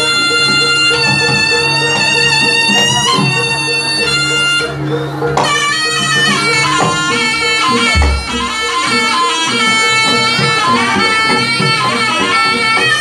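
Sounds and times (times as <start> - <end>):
double-reed shawm melody: 0.0 - 13.0
gamelan music: 0.0 - 13.0
deep low drum stroke: 7.8 - 8.8.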